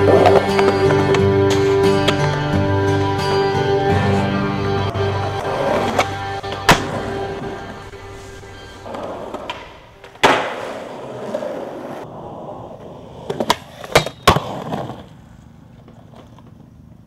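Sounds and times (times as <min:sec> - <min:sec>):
faint music: 0:00.0 - 0:12.0
skateboard wheels rolling on concrete: 0:00.0 - 0:17.0
skateboard clacks: 0:05.4 - 0:07.6, 0:08.8 - 0:12.1, 0:12.8 - 0:17.0.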